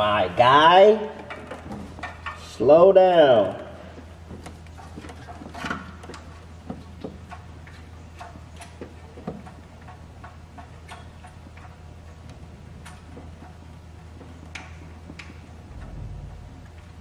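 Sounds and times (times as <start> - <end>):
steady low hum: 0.0 - 17.0
tools clicking against metal: 7.3 - 11.8.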